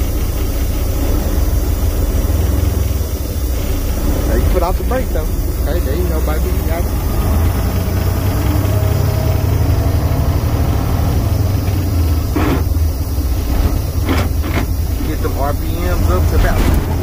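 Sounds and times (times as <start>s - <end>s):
diesel truck engine at low revs: 0.0s - 17.0s.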